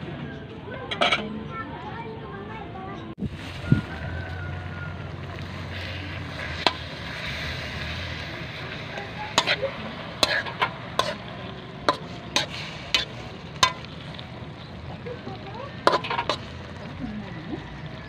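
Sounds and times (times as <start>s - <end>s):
meat sizzling in a wok: 3.2s - 18.0s
spatula scraping and knocking wok: 3.9s - 17.0s.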